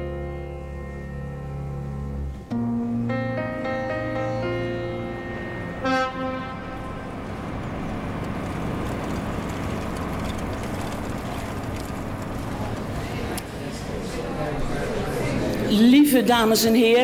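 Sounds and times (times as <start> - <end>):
city street traffic: 0.0 - 17.0.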